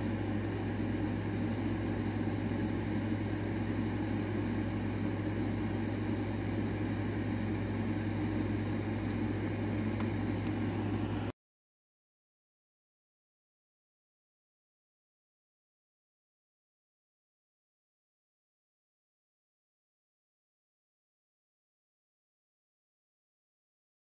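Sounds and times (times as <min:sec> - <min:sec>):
steady low machine hum: 0:00.0 - 0:11.4.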